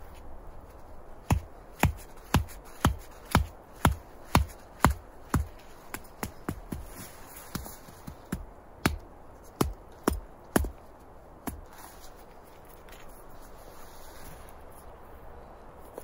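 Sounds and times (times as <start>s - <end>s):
axe knocking wooden stake: 1.2s - 6.8s, 8.3s - 9.0s.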